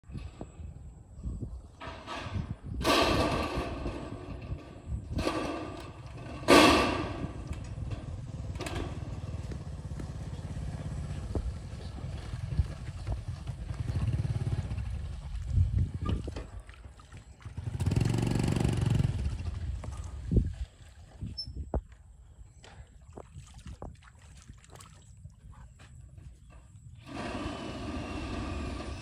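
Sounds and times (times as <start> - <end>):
metal roofing sheets clattering: 1.8 - 9.4.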